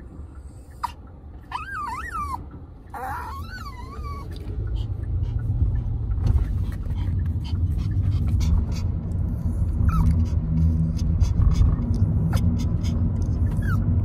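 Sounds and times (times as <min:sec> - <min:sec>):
car cabin road rumble: 0:00.0 - 0:14.0
dog whining: 0:00.8 - 0:04.5, 0:09.8 - 0:10.2, 0:12.3 - 0:14.0.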